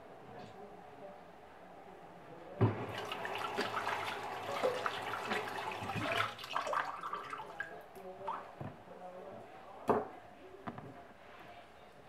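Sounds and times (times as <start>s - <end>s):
faucet running into sink: 2.7s - 7.7s.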